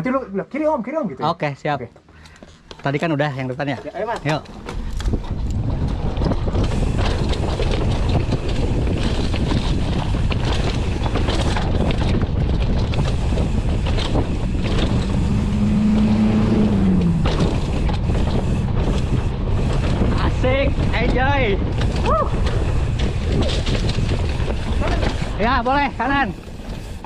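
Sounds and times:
bike rattling and knocking: 2.0s - 27.0s
wind rushing over microphone: 4.3s - 27.0s
low hum: 4.4s - 25.4s.

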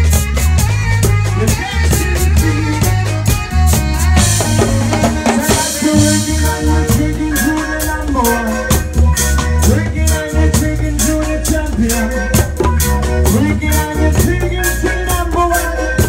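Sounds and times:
heavy bass line: 0.0s - 16.0s
reggae band playing: 0.0s - 16.0s.

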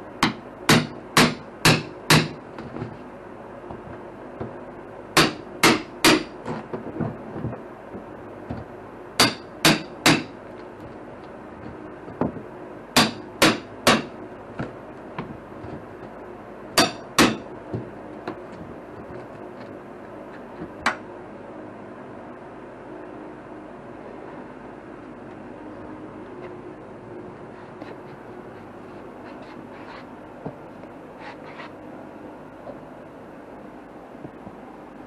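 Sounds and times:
hammer striking steel pry bar: 0.2s - 2.4s, 5.2s - 6.4s, 9.2s - 10.4s, 13.0s - 14.2s, 16.8s - 17.5s.

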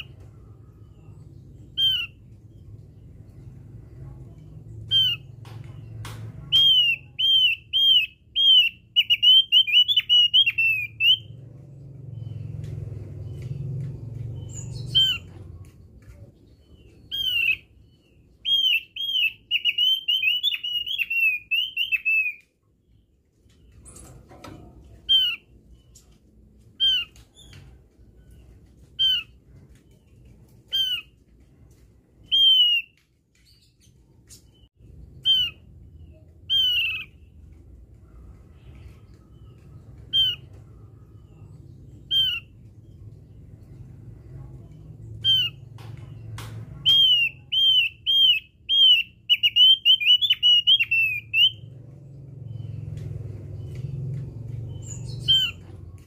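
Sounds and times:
bird singing whistled notes: 6.5s - 11.4s, 16.6s - 23.0s, 32.2s - 37.2s, 46.9s - 51.8s.

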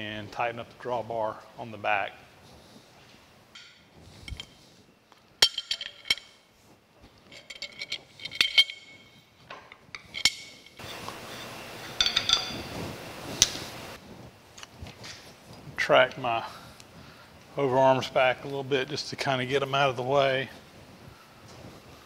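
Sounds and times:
metal parts and wrench clinking: 3.6s - 4.6s, 5.4s - 6.5s, 7.2s - 12.8s
steady scraping noise: 6.0s - 22.0s.

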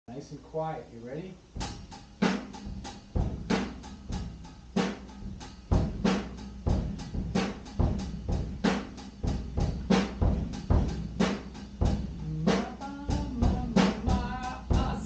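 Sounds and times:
drum kit slow beat: 1.2s - 15.0s.

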